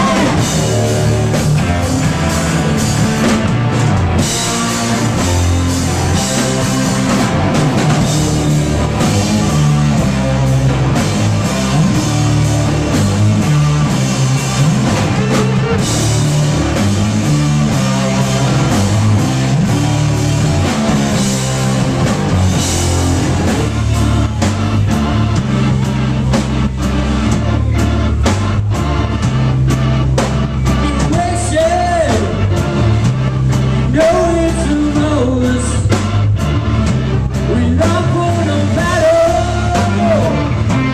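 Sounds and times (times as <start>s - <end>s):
person singing: 0.0s - 1.1s, 30.7s - 32.7s, 33.8s - 36.1s, 37.3s - 40.7s
rock band playing: 0.0s - 40.9s.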